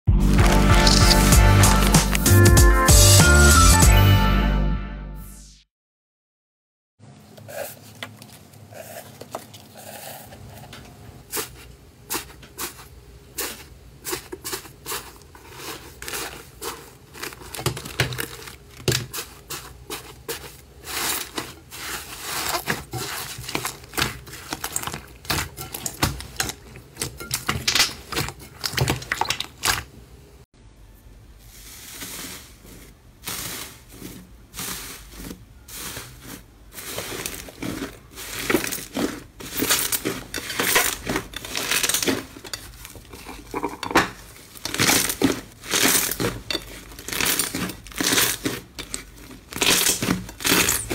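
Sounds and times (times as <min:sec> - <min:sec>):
slime crust crackling: 0:00.2 - 0:02.3, 0:11.3 - 0:29.9, 0:31.5 - 0:50.9
slime squishing: 0:11.3 - 0:30.0, 0:31.5 - 0:50.9.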